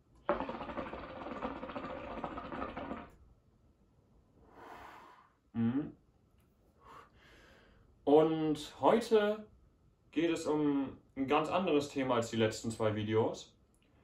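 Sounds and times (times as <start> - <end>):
water pipe bubbling: 0.0 - 3.2
soft breathy exhale: 4.4 - 5.4, 6.8 - 7.8
short vocal sound: 4.5 - 6.0.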